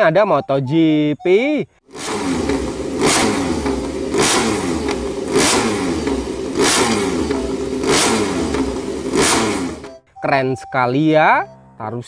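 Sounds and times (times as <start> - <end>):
motorcycle engine revving: 1.9 - 10.0.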